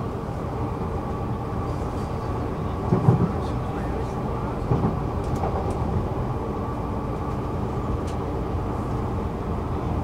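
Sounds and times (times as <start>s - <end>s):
metro train rumbling: 0.0s - 10.0s.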